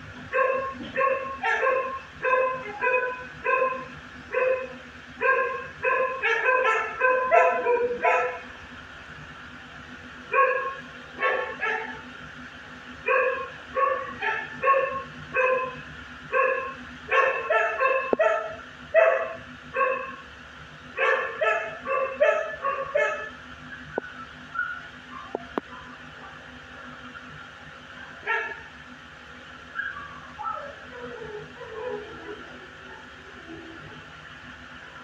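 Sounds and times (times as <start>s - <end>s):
dog barking: 0.3s - 8.5s, 10.3s - 12.1s, 13.0s - 20.2s, 21.0s - 23.3s, 28.0s - 28.7s, 29.8s - 33.1s.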